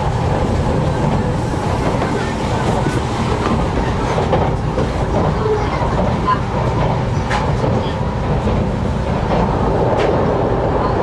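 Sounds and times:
train rumbling on track: 0:00.0 - 0:11.0.

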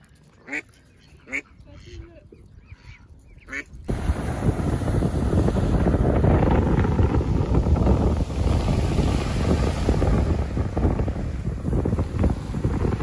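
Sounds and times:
duck quacking: 0:00.4 - 0:02.1, 0:02.7 - 0:03.7
wind buffeting microphone: 0:01.6 - 0:13.0
waves washing onto shingle: 0:03.9 - 0:13.0.

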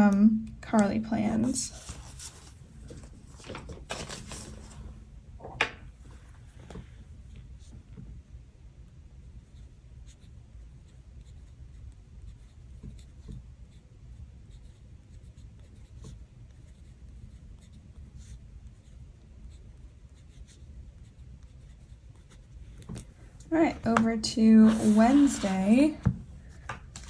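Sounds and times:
pen scratching on paper: 0:09.3 - 0:23.1, 0:24.4 - 0:26.0.

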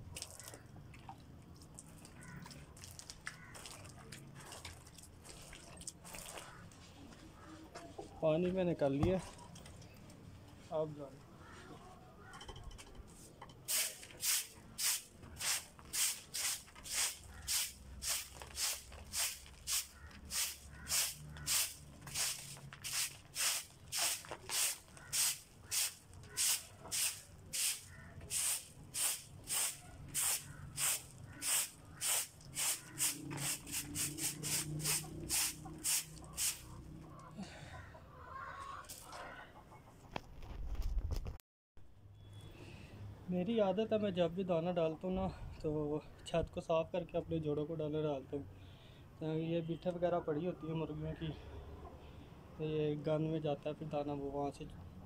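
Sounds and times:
stiff broom sweeping: 0:13.7 - 0:36.7.

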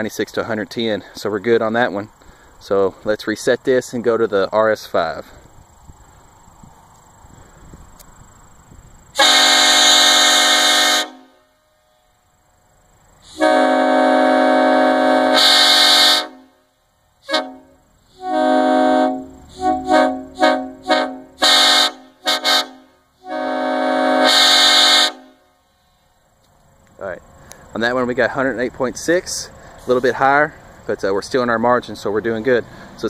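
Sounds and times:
train horn blasts and toots: 0:09.2 - 0:12.2, 0:13.2 - 0:25.8.

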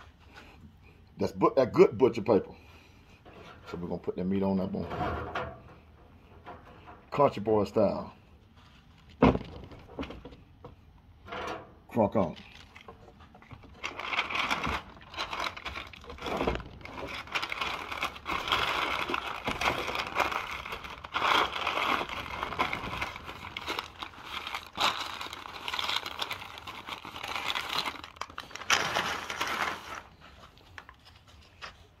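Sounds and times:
paper crinkling and rustling: 0:12.2 - 0:32.0.

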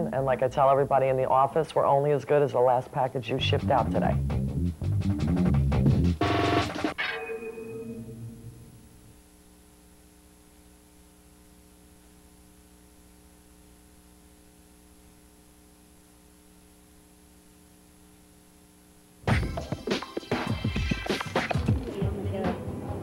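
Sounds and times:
electrical hum with hiss: 0:00.0 - 0:23.0
loud music: 0:03.4 - 0:07.0, 0:19.3 - 0:23.0.

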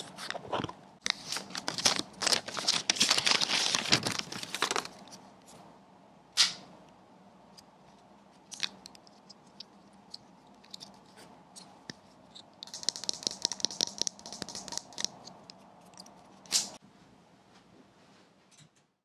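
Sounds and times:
plastic adapter taps and scratches: 0:12.6 - 0:16.1.

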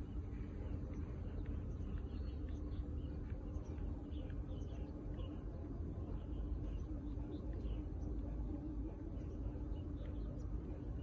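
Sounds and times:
low rumble and hum: 0:00.0 - 0:11.0.

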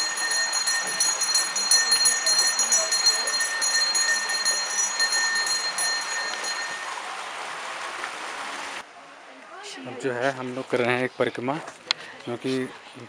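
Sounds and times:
bell rung rapidly: 0:00.0 - 0:06.9.

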